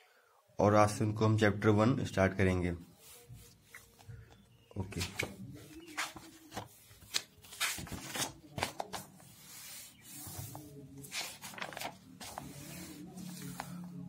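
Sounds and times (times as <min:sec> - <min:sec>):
book pages turning: 0:03.0 - 0:14.0.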